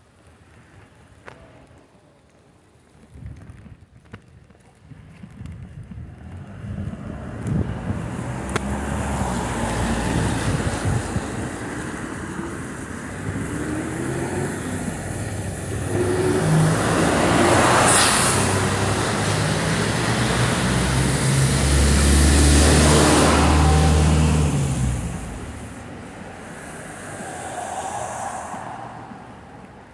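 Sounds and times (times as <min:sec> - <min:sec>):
bus engine rumble: 0:05.4 - 0:29.9
tyres hissing on wet road: 0:06.4 - 0:29.9.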